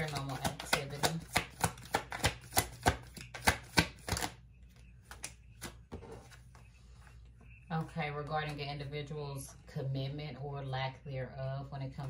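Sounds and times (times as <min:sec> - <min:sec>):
cards being shuffled by hand: 0:00.0 - 0:06.6.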